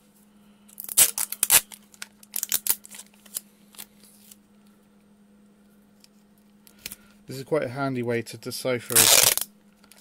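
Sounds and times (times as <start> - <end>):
faint steady hum: 0.0 - 10.0
paper and sticky tape crackling: 0.8 - 4.4, 8.9 - 9.5.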